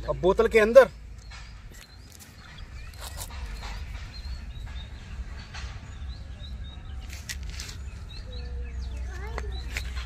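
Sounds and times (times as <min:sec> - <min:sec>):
small birds chirping: 0:00.0 - 0:10.0.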